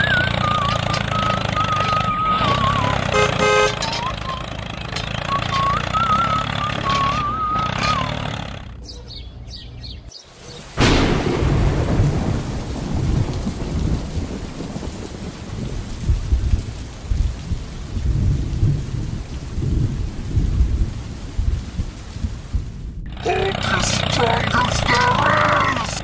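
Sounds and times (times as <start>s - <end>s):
steady rain: 10.2s - 26.0s
low thunder rumbles: 10.7s - 23.1s
thunderclap: 10.8s - 23.0s.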